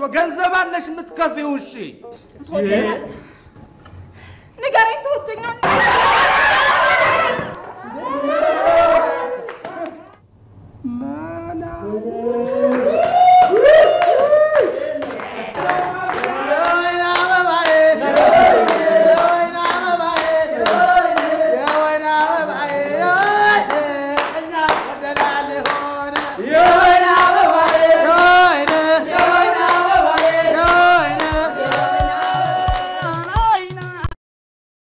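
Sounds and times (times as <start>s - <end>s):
person singing melismatically: 10.8s - 12.9s, 15.0s - 34.1s
hand clapping: 12.7s - 21.9s, 22.6s - 34.2s.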